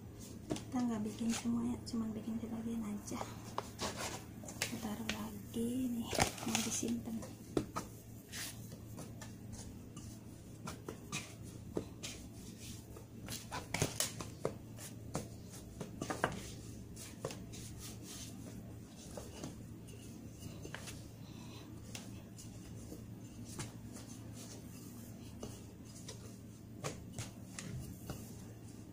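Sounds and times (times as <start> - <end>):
hands patting dough: 0.0 - 28.9
low steady hum: 0.0 - 28.9.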